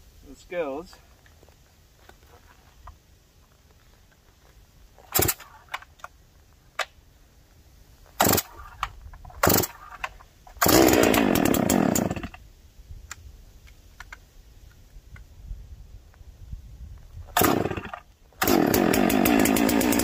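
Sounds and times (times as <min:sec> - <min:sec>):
chainsaw engine running: 0:09.4 - 0:09.8, 0:10.6 - 0:12.3, 0:17.3 - 0:20.0
recoil starter cord rasps: 0:09.4 - 0:10.0, 0:10.6 - 0:12.3, 0:17.3 - 0:20.0.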